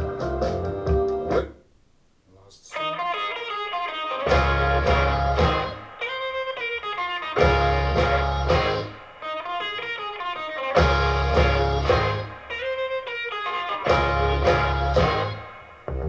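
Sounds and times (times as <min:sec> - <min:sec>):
guitar song over loudspeakers: 0:02.8 - 0:16.0
heavy bass notes: 0:04.3 - 0:06.0, 0:07.4 - 0:09.2, 0:10.8 - 0:12.8, 0:13.9 - 0:16.0.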